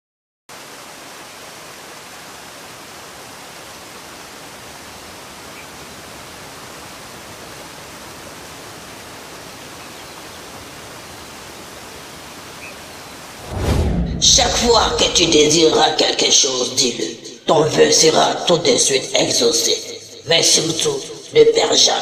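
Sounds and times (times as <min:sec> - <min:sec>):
waterfall rushing: 0:00.5 - 0:16.4.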